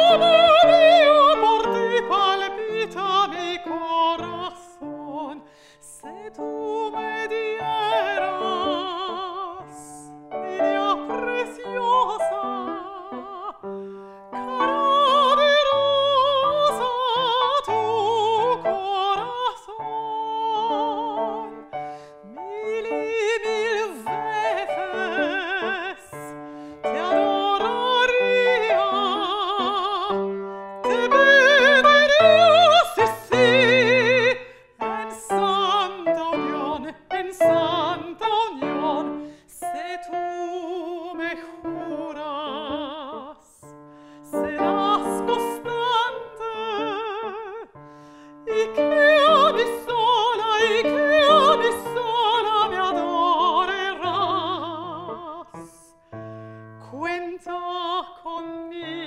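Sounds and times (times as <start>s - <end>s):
woman singing with vibrato: 0.0s - 47.8s, 48.4s - 56.1s, 56.8s - 59.0s
grand piano: 0.0s - 59.0s
singer breathing: 5.4s - 5.9s, 13.7s - 14.4s, 21.8s - 22.3s, 26.3s - 26.9s, 43.8s - 44.3s, 47.8s - 48.5s.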